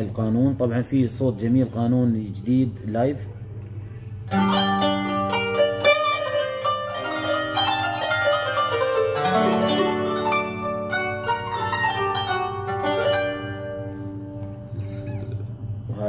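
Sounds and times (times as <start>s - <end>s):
plucked zither notes on keyboard: 4.3s - 15.5s.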